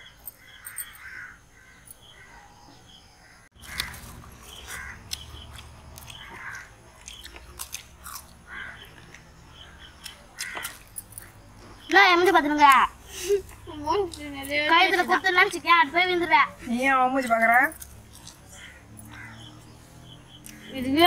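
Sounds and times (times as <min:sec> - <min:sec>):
crows cawing: 0:00.4 - 0:02.4, 0:03.2 - 0:05.2, 0:06.1 - 0:06.8, 0:08.4 - 0:11.4, 0:18.1 - 0:19.8
people eating: 0:03.6 - 0:21.0.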